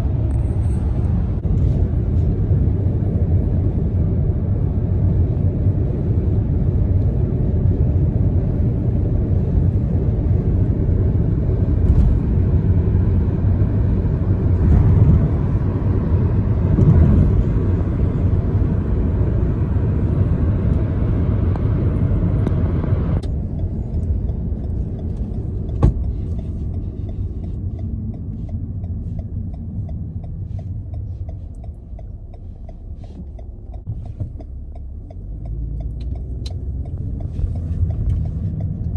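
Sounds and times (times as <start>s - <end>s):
car road noise and rumble: 0.0s - 38.9s
turn signal ticking: 21.5s - 38.9s.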